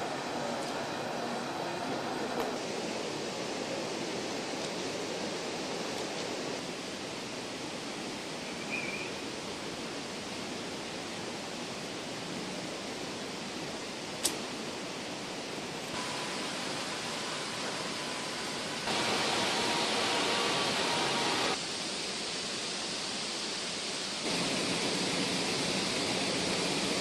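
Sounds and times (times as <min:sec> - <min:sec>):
steady rushing outdoor noise: 0:00.0 - 0:27.0
sharp click: 0:14.2 - 0:14.4.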